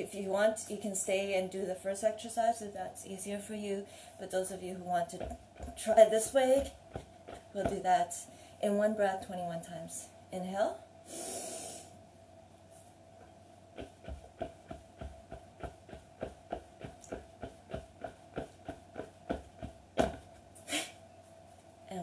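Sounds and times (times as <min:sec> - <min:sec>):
soft thuds on yoga mat: 0:05.1 - 0:08.0, 0:13.8 - 0:20.4
loud breath release: 0:11.1 - 0:12.0.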